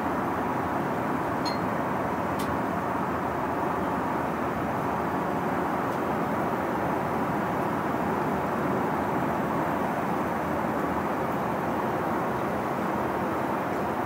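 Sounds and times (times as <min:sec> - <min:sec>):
airliner cabin engine rush: 0:00.0 - 0:14.0.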